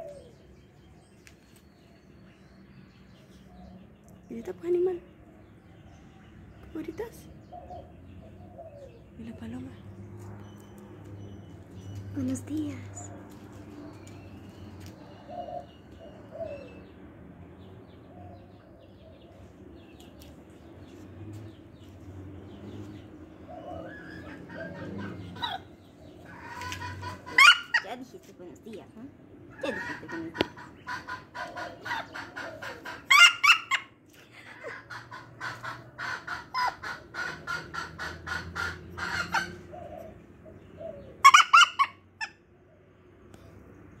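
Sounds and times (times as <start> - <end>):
dove cooing: 0.0 - 0.5, 7.4 - 9.6, 15.0 - 16.9, 22.8 - 28.3, 29.5 - 42.8
small birds chirping: 0.0 - 44.0
rooster clucking: 23.8 - 27.9, 29.5 - 33.9, 34.5 - 40.0
rooster squawks: 29.6 - 33.9, 41.2 - 42.3.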